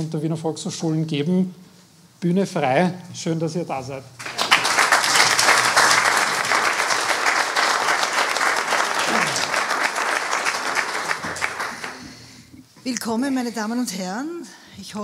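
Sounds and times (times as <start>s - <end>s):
audience applauding: 4.2s - 12.4s.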